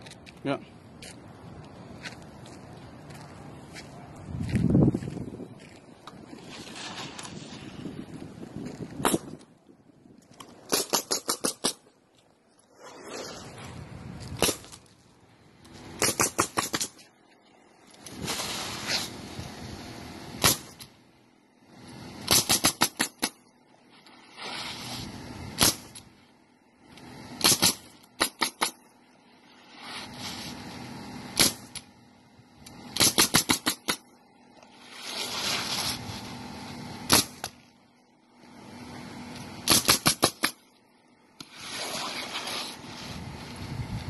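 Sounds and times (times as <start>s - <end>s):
soft scraping: 3.1s - 8.9s, 12.6s - 14.4s, 41.5s - 43.5s
pneumatic nailer shots: 9.0s - 9.5s, 10.6s - 11.9s, 14.3s - 14.9s, 15.9s - 17.1s, 18.0s - 21.0s, 21.7s - 23.5s, 24.2s - 26.2s, 26.9s - 28.9s, 29.7s - 32.0s, 32.6s - 34.2s, 36.9s - 37.7s, 39.3s - 40.7s, 41.4s - 43.0s.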